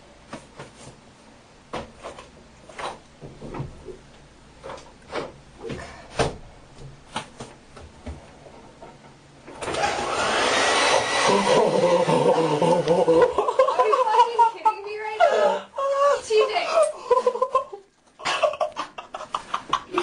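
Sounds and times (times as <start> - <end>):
hair dryer running: 9.6 - 13.4.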